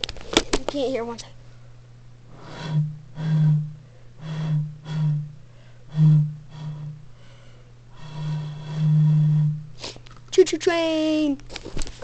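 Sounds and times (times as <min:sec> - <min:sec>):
breathy hoots blowing across bottle: 0:02.3 - 0:09.8.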